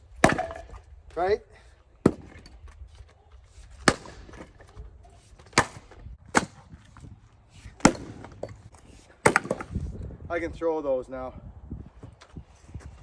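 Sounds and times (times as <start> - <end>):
axe whacking into wood: 0.2 - 0.8, 3.8 - 4.5, 5.4 - 6.8, 7.8 - 8.4, 9.2 - 9.8.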